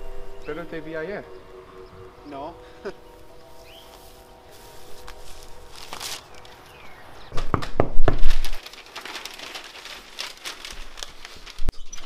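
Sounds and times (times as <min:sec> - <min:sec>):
crumpled material crinkling: 0:03.8 - 0:06.7, 0:08.2 - 0:12.0.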